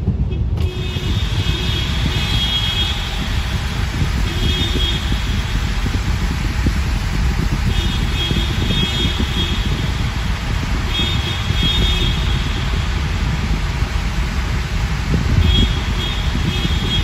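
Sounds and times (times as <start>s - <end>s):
car tyres and engine rumble: 0.0s - 17.0s
car horns honking: 0.2s - 6.1s, 7.6s - 12.9s, 15.2s - 17.0s.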